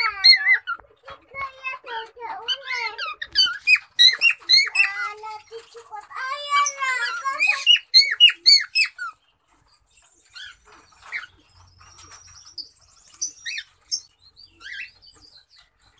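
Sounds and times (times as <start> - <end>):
cockatiel chirps: 7.1 - 9.2.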